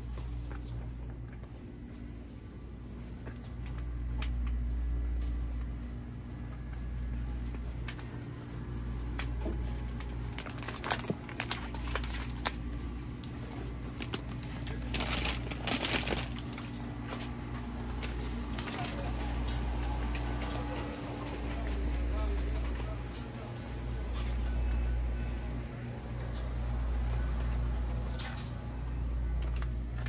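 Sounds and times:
steady low hum: 0.0 - 30.0
packaging clicking and crinkling: 9.2 - 19.6.

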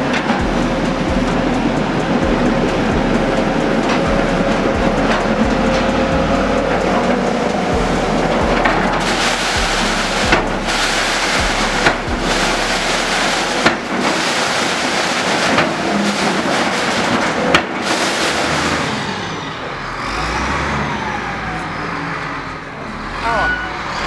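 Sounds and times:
excavator engine running: 0.0 - 24.0
wall breaking and rubble falling: 9.1 - 18.9.

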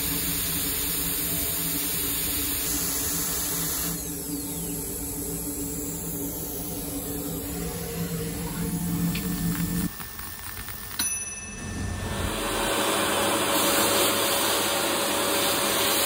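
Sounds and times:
milling machine hum: 0.0 - 16.0
faint falling whine: 3.9 - 13.5.

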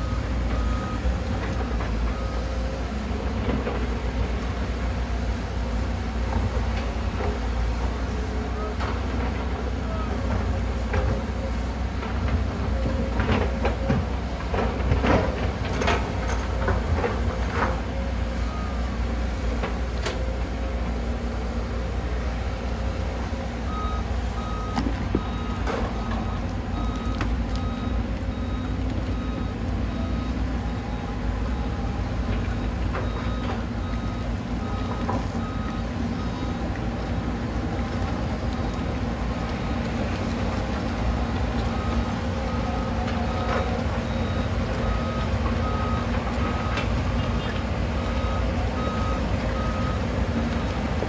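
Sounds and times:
excavator diesel engines rumbling: 0.0 - 51.0
backup alarm beeping: 22.9 - 36.7, 41.6 - 50.9.

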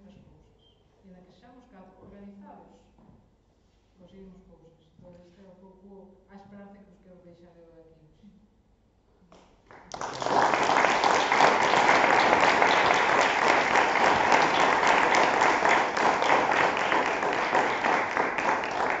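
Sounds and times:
audience applauding: 9.7 - 19.0.

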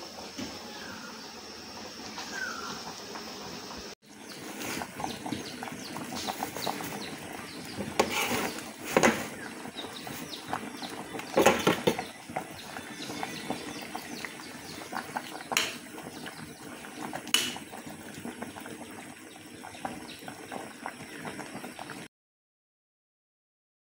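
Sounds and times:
soup boiling and bubbling: 0.0 - 22.1
leaves rustling into pot: 4.3 - 12.1.

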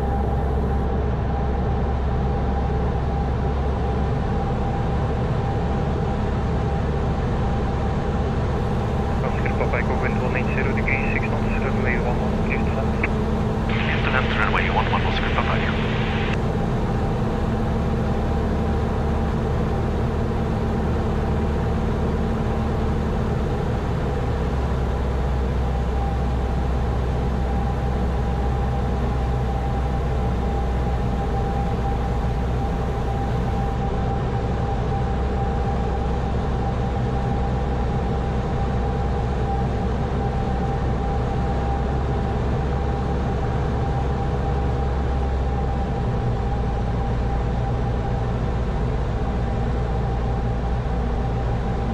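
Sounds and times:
light aircraft engine and propeller drone: 0.0 - 51.9.

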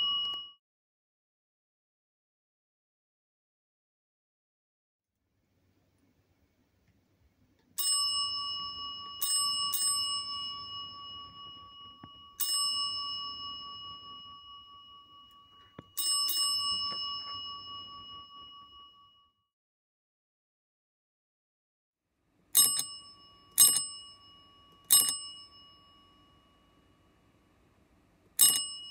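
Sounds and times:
desk service bell dings: 0.0 - 0.6, 7.8 - 19.3, 22.6 - 27.2, 28.4 - 28.9.

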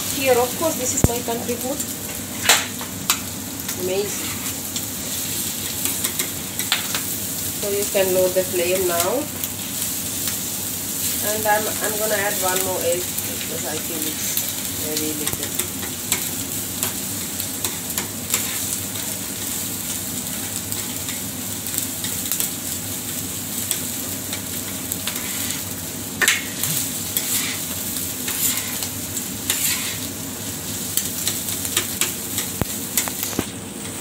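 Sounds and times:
food sizzling on a griddle: 0.0 - 34.0
metal spatula scraping steel: 27.2 - 27.7, 28.3 - 28.9, 29.5 - 30.0.

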